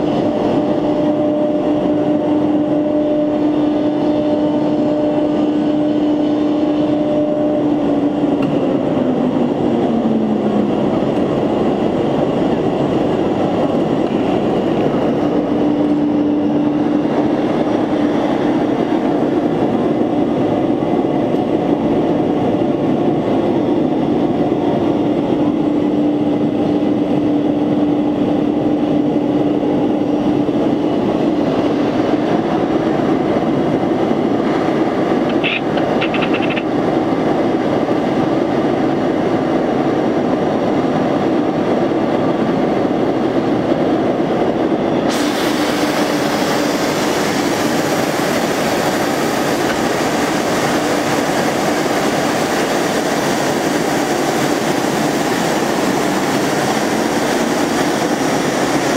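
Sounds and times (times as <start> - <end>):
cnc router machine hum: 0.0 - 40.3
harsh routing hiss: 45.1 - 50.0.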